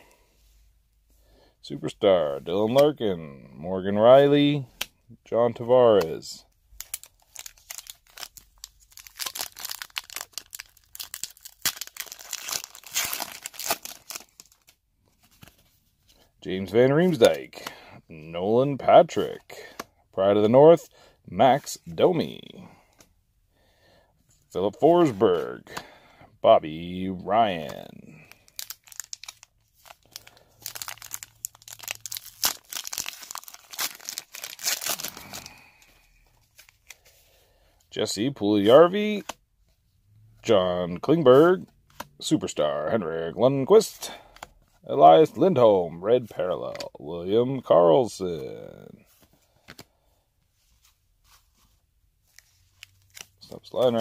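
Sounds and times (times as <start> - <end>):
foil wrapper crinkling: 6.8 - 14.8, 28.1 - 37.1.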